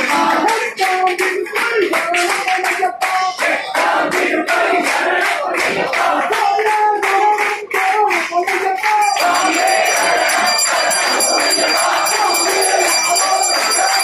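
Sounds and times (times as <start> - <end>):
crowd chanting: 0.0 - 14.0
rhythmic hand-clapping: 0.0 - 14.0
temple bell ringing: 9.0 - 14.0.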